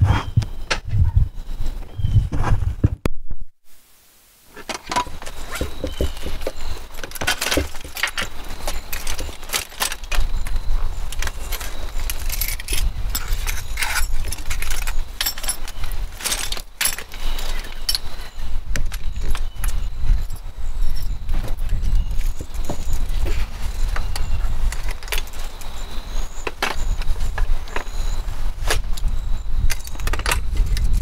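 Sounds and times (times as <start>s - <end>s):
wheelchair metal clicks and rattles: 4.6s - 20.4s, 21.7s - 25.8s.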